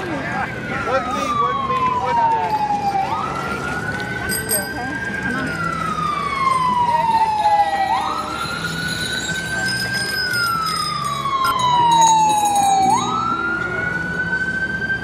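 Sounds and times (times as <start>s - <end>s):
police siren wailing: 0.0s - 15.0s.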